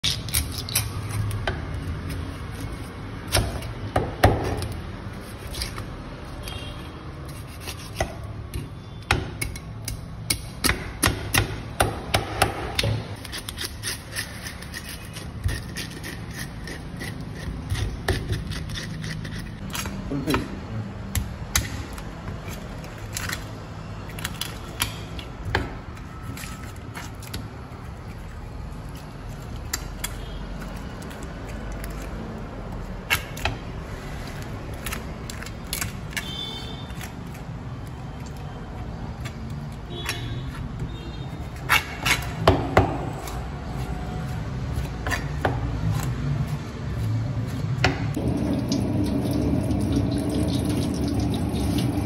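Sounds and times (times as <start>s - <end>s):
knife cutting fish on wooden board: 7.2s - 8.7s.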